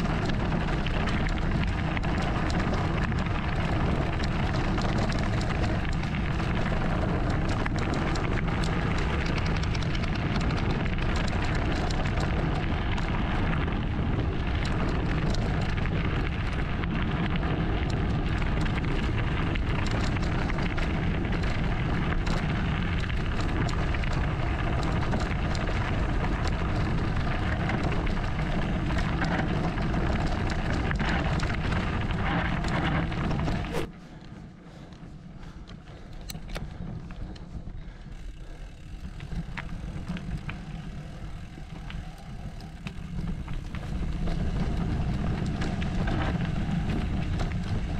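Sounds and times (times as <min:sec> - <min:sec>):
bike rattling and knocking: 0:00.0 - 0:47.9
bike tyres crunching over gravel: 0:00.0 - 0:47.9.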